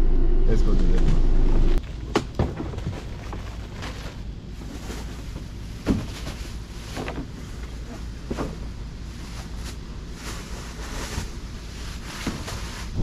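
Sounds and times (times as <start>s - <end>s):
plastic bag knocks and rustles: 5.8s - 6.4s.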